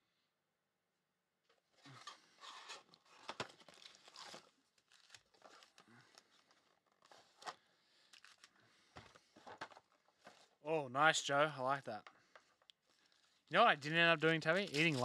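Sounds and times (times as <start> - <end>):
packaging tearing and crinkling: 2.4 - 8.5, 14.2 - 15.0.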